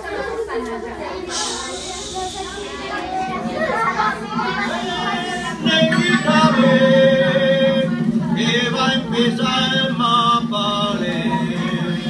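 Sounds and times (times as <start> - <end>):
steady musical accompaniment: 1.3 - 12.0
person singing: 4.2 - 12.0.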